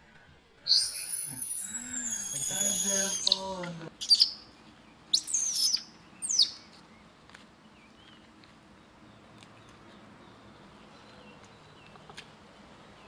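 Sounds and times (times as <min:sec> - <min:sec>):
monkey screeching: 0:00.7 - 0:04.4, 0:05.2 - 0:06.6.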